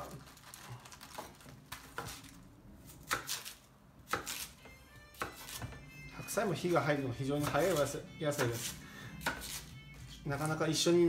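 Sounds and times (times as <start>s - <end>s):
knife cutting cabbage on board: 0.0s - 5.8s, 7.4s - 9.7s.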